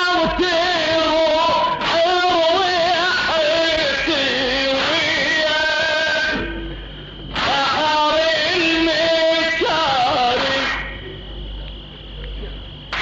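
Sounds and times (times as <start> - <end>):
person chanting a lament: 0.0 - 6.6, 7.4 - 10.9.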